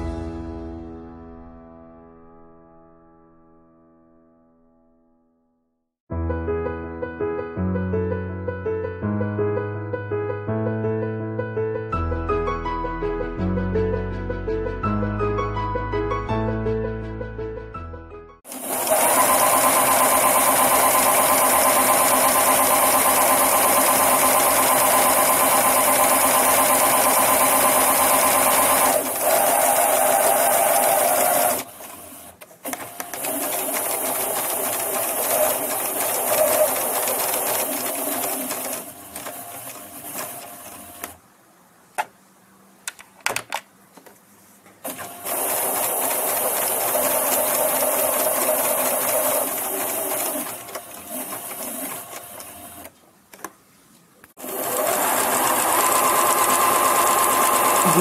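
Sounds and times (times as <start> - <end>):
sewing machine stitching: 18.5 - 41.2, 44.8 - 52.9, 54.4 - 58.0.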